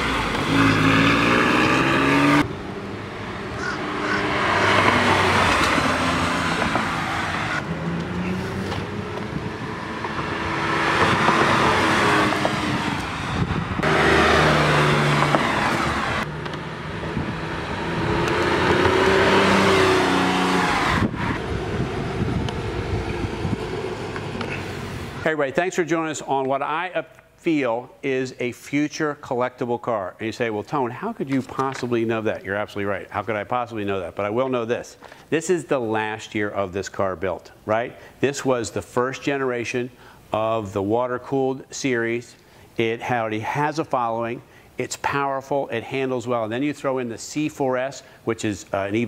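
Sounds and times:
car engine and exhaust passing: 0.0s - 25.3s.

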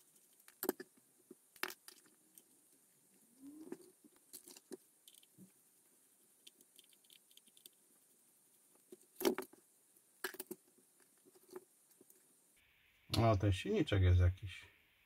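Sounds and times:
plastic parts clicking and knocking: 0.1s - 2.5s, 3.6s - 5.5s, 8.8s - 9.6s, 10.2s - 12.2s.

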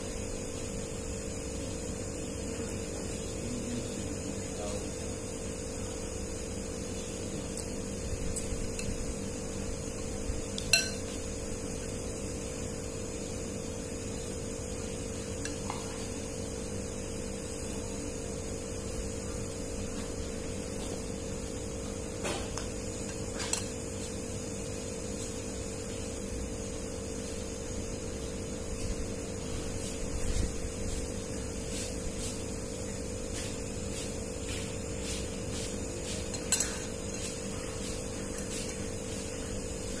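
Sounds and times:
steady hum: 0.0s - 40.0s
chopsticks and spoon clinking on bowl: 7.5s - 9.1s, 10.5s - 11.3s, 36.3s - 37.4s.

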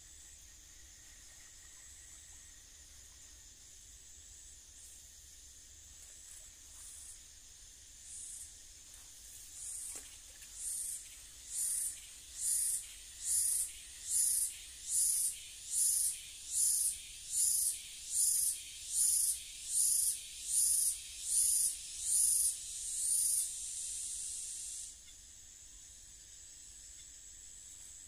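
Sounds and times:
insect rasping pulses: 0.0s - 28.0s.

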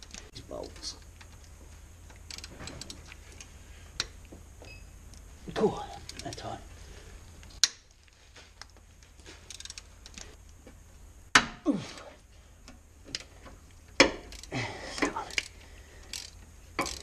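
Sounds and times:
ratchet spanner ticking: 2.2s - 3.0s, 9.5s - 10.3s, 14.0s - 17.0s.

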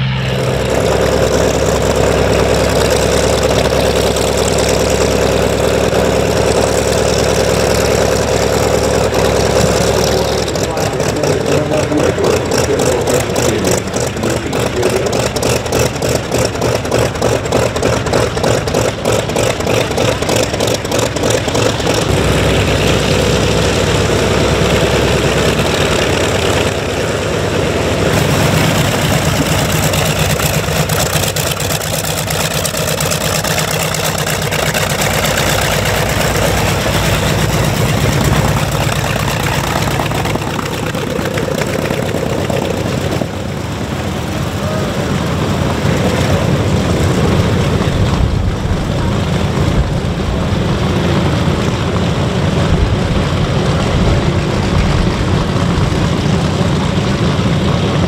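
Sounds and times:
aircraft radial engine running: 0.0s - 58.0s.

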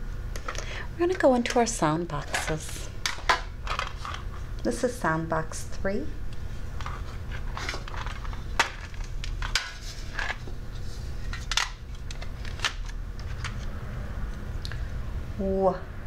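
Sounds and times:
plastic pieces rattling in metal tin: 0.5s - 4.2s, 7.6s - 10.4s.

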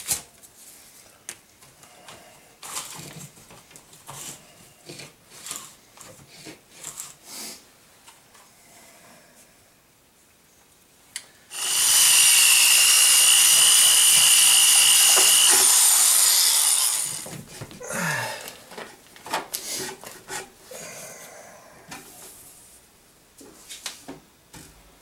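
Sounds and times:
power drill whining: 11.5s - 17.3s
tool being handled: 14.8s - 17.8s.

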